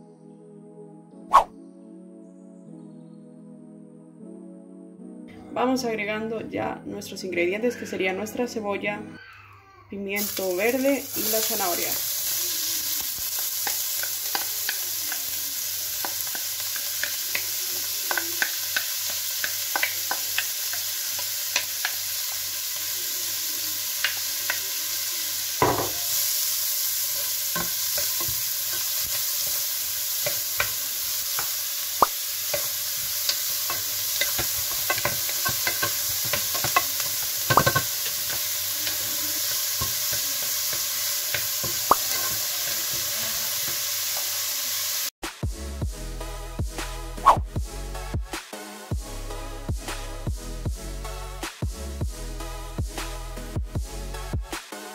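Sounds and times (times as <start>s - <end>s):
vegetables sizzling in oil: 10.2s - 45.2s
wooden spoon scraping pot: 32.5s - 43.8s.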